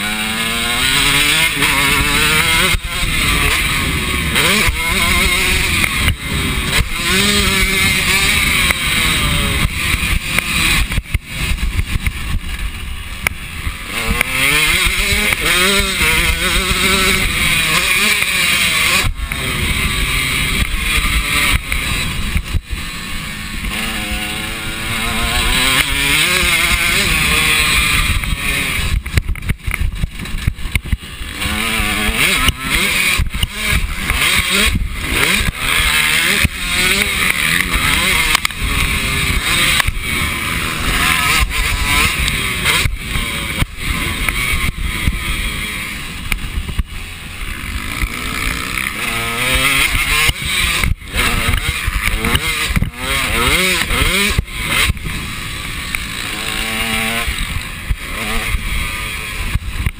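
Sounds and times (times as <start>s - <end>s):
motocross bike engine racing: 0.0s - 59.9s.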